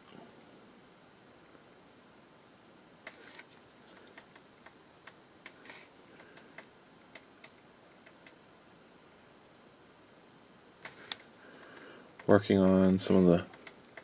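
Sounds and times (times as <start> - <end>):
faint high whine: 0.0 - 14.0
small clicks and taps: 13.5 - 14.0.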